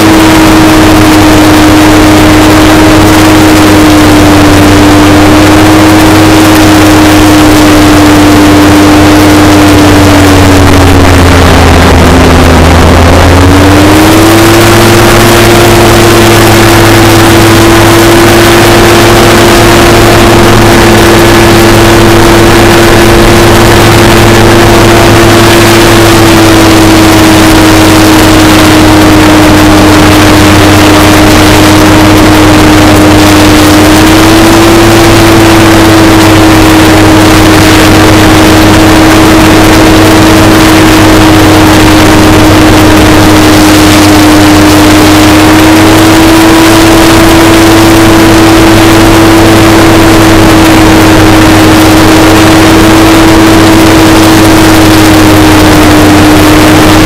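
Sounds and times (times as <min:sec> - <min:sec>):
hovercraft engine droning: 0:00.0 - 0:57.0.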